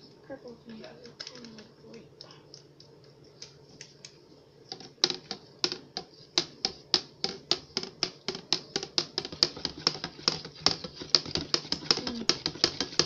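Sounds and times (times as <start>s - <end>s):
spoon knocking inside pitcher: 4.7s - 13.0s.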